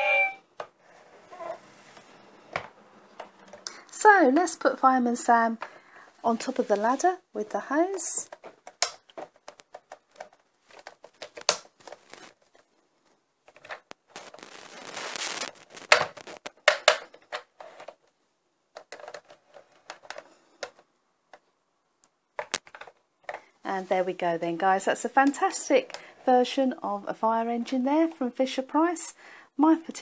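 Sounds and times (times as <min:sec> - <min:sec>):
plastic toy clicks and knocks: 0:15.9 - 0:18.0, 0:22.4 - 0:23.4.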